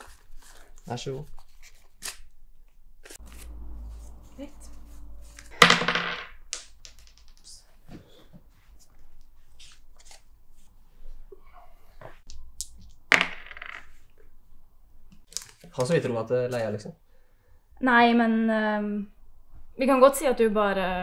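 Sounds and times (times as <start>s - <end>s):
game pieces clattering on table: 5.5s - 7.5s, 12.6s - 14.0s
pieces clicking when handled: 12.3s - 13.2s.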